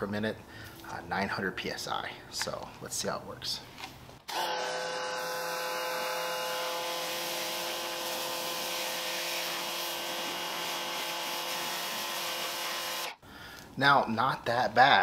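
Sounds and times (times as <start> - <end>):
pressure washer motor whine: 4.3 - 13.2
high-pressure spray hiss: 5.9 - 13.2.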